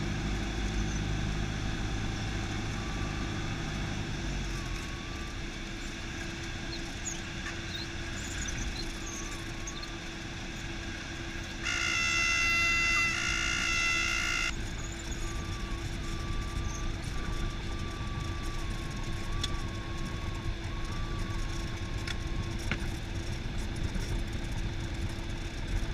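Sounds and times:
plane engine idling: 0.0 - 25.9
loud horn-like tone: 11.6 - 14.6.

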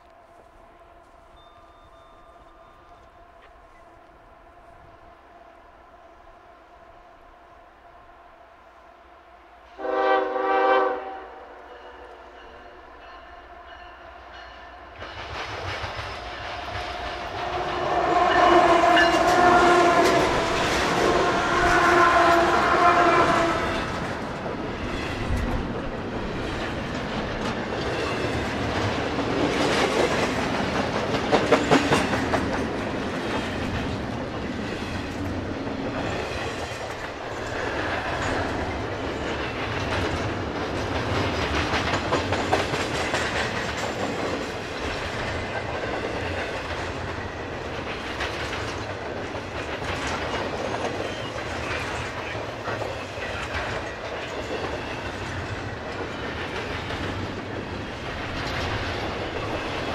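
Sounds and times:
freight train rumbling past: 0.0 - 59.9
steel wheels clicking over rail joints: 23.3 - 59.9.

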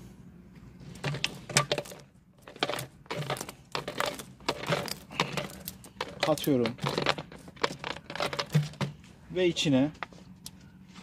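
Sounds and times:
plastic bottle crinkling: 1.0 - 9.0.

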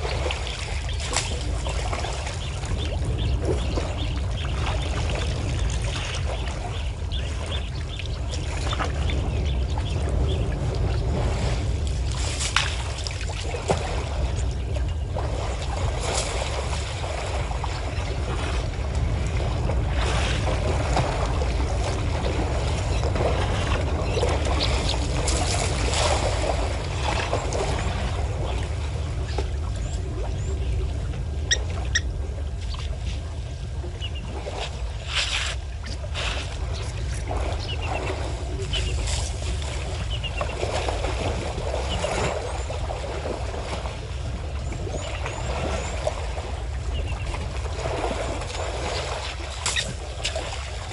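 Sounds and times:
sharp splashes: 0.0 - 7.5, 19.3 - 28.6, 44.8 - 50.9
water splashing and trickling: 0.0 - 50.9.

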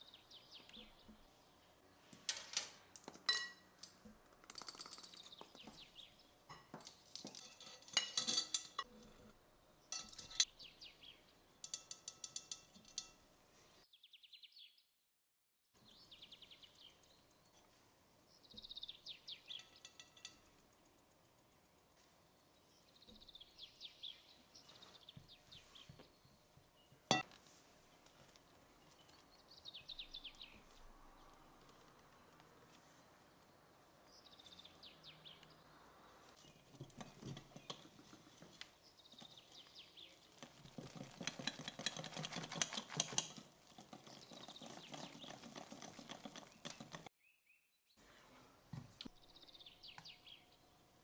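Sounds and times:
metal spoon clinking on tub: 3.2 - 3.7, 6.5 - 9.2, 9.9 - 10.5, 11.6 - 13.2, 19.5 - 20.5
sieve ticking while sifting flour: 19.4 - 23.0.

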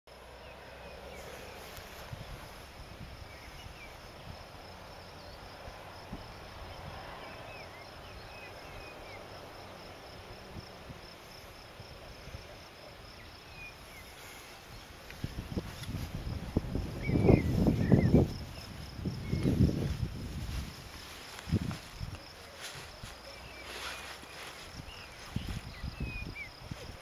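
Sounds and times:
cricket chirping: 0.1 - 27.0
low wind rumble: 0.1 - 27.0
faint bird chirps: 17.0 - 19.6.

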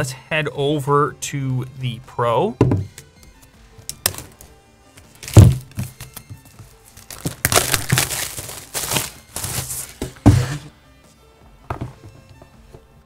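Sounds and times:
plastic wrap crinkling: 5.1 - 10.2
thump: 5.3 - 5.8.

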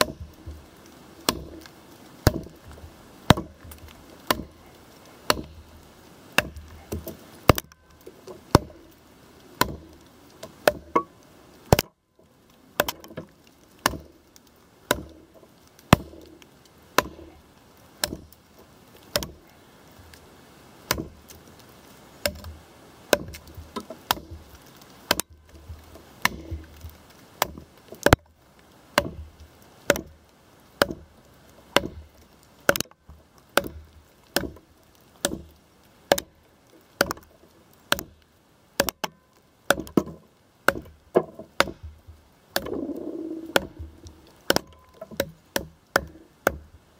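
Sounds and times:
machete chopping into log: 1.3 - 1.6, 2.2 - 2.6, 3.3 - 4.6, 5.3 - 5.6, 6.4 - 7.7, 8.5 - 8.8, 9.6 - 9.8, 12.8 - 14.1, 14.9 - 15.2, 17.0 - 17.3, 18.0 - 18.2, 19.1 - 19.4, 23.1 - 23.4, 25.1 - 25.3, 31.8 - 32.0, 40.7 - 41.9, 43.6 - 46.6.

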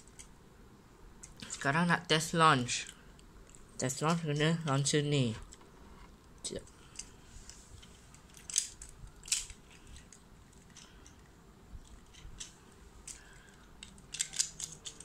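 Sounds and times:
plastic toy clicks and clacks: 11.9 - 15.0.

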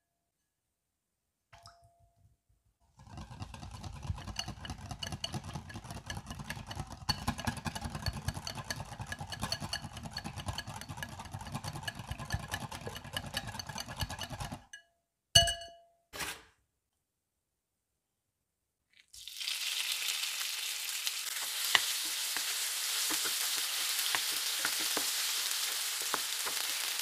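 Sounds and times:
whisk beating mixture in bowl: 2.9 - 14.7.

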